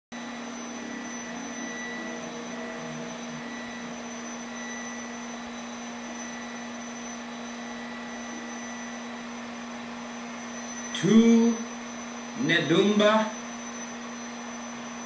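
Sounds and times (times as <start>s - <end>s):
steady low hum with hiss: 0.2s - 15.0s.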